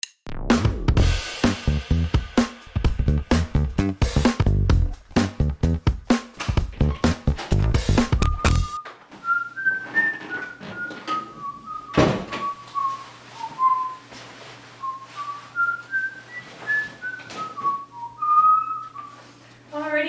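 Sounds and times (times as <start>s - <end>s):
person whistling a tune: 8.1s - 14.1s, 14.8s - 19.3s
thump: 11.9s - 12.4s.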